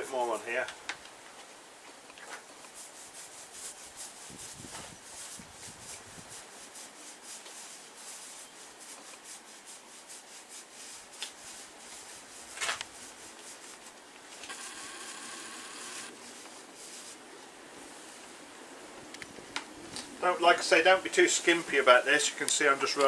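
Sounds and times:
paint roller swishing on hull: 2.3 - 17.2, 20.2 - 23.0.

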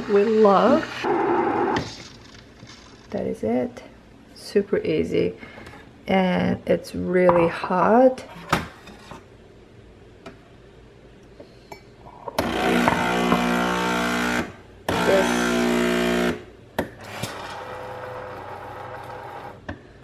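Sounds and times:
pump buzzing: 12.4 - 16.4.

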